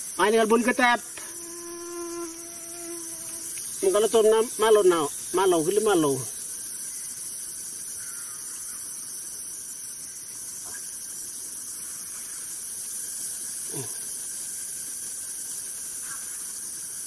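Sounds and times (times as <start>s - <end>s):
insect chorus drone: 0.0s - 17.0s.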